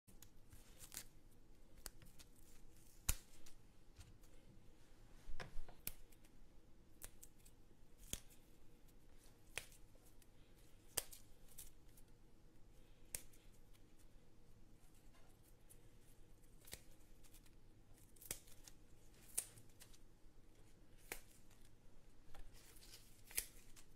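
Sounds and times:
low steady hum: 0:00.1 - 0:23.9.

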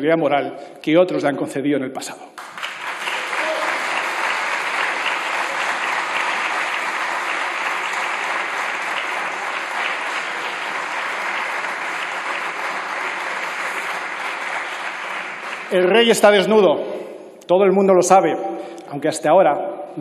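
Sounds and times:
group applauding: 0:02.4 - 0:16.6.

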